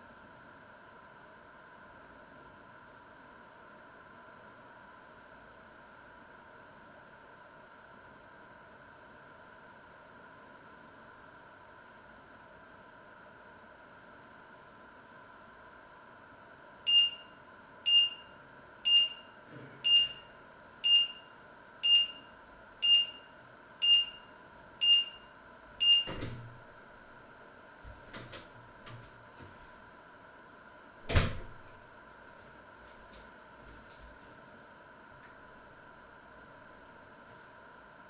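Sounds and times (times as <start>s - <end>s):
appliance alarm beeping: 16.8s - 26.6s.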